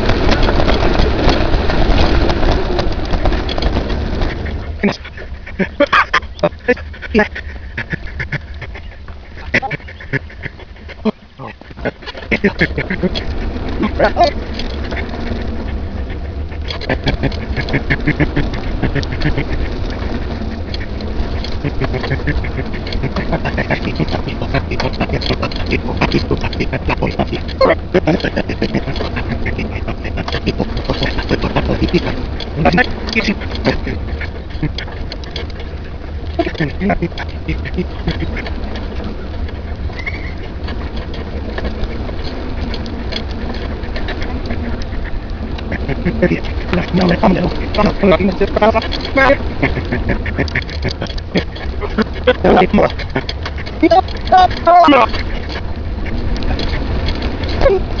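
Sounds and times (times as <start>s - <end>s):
sped-up chattering clicks and squeaks: 0.0s - 58.0s
wind rumble on microphone: 0.0s - 58.0s.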